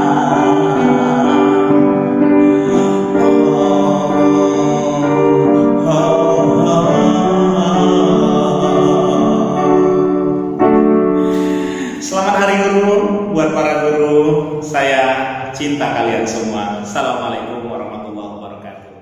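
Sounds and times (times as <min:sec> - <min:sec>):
man singing slowly: 0:00.0 - 0:10.4, 0:11.2 - 0:18.3
electronic keyboard chords: 0:00.0 - 0:16.9.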